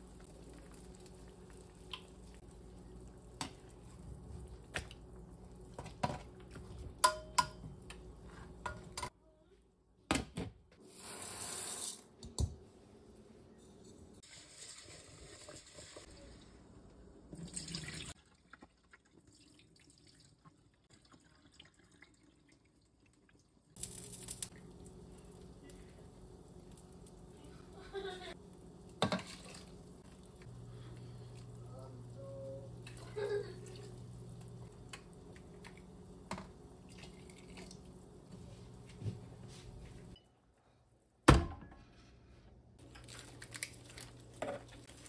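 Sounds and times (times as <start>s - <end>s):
tap water running: 14.2s - 16.6s, 17.3s - 25.6s, 27.9s - 31.6s, 32.7s - 39.0s.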